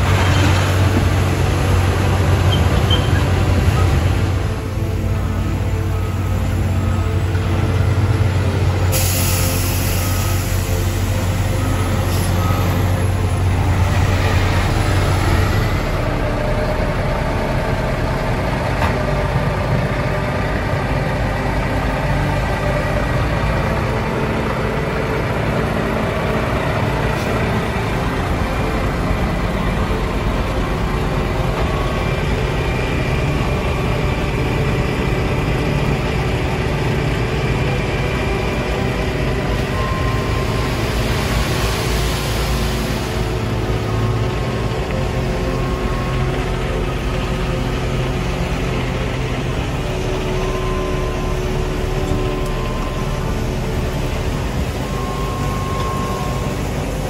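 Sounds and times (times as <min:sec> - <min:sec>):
diesel truck engines running: 0:00.0 - 0:57.0.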